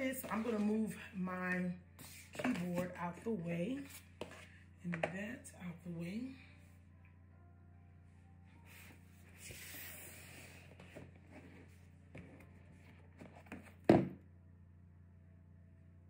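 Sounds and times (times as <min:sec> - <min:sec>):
cardboard box sliding on desk: 0:08.7 - 0:13.7.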